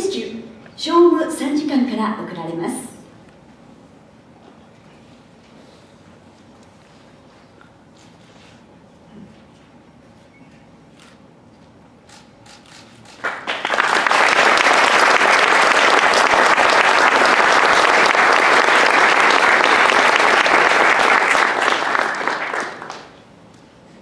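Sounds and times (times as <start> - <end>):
audience applauding: 13.1 - 23.2.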